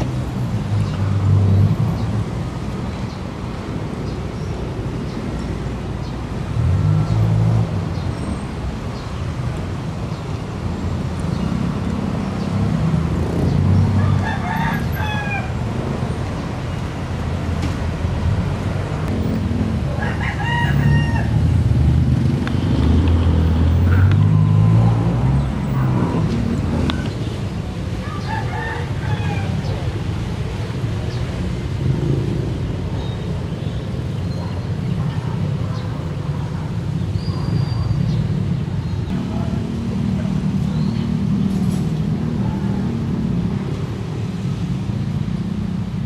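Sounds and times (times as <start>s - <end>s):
traffic engine rumble: 0.0s - 46.0s
rooster crowing: 14.0s - 15.6s, 19.9s - 21.4s, 28.0s - 29.7s.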